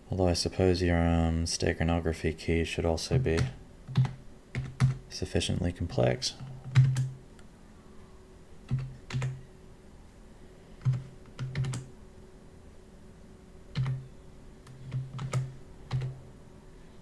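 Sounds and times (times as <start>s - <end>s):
computer keyboard keystrokes: 3.4s - 5.0s, 6.6s - 7.1s, 8.7s - 9.4s, 10.8s - 11.9s, 13.7s - 14.0s, 14.7s - 16.1s.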